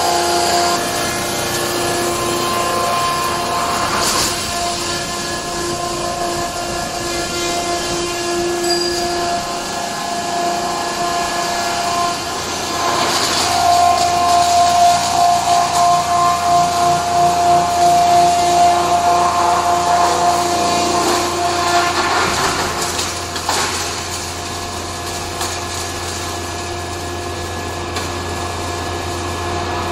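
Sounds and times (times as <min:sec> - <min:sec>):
sawdust machine whirring: 0:00.0 - 0:29.9.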